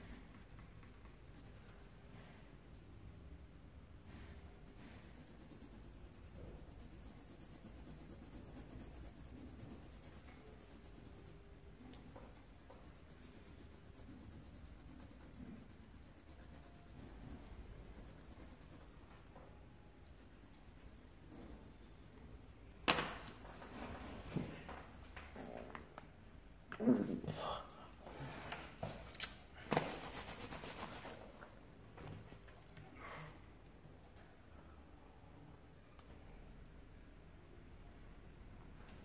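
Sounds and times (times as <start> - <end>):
coloured pencil scratching on paper: 0.0 - 2.2, 4.1 - 19.3, 20.0 - 22.4, 29.8 - 31.2.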